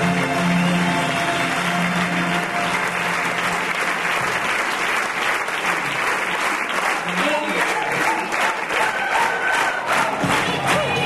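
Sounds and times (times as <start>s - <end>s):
music: 0.0s - 4.7s, 7.4s - 11.0s
audience applauding: 0.0s - 11.0s.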